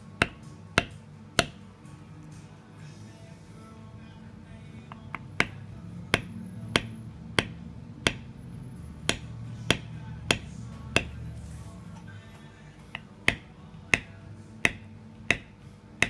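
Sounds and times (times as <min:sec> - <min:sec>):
mallet tapping metal stamping tool: 0:00.2 - 0:01.6, 0:04.9 - 0:11.2, 0:12.9 - 0:16.0.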